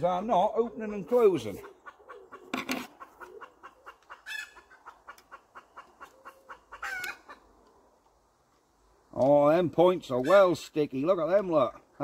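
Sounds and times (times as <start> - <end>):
chickens clucking: 0.6 - 7.9.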